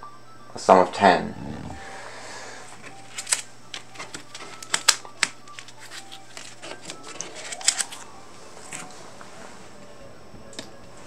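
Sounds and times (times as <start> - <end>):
cards clicking on a tabletop: 3.1 - 8.9.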